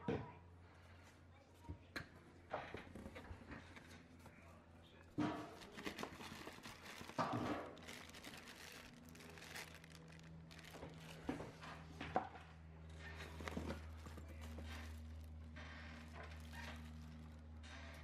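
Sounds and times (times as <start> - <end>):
plastic bag crinkling: 5.4 - 11.7, 13.0 - 17.6.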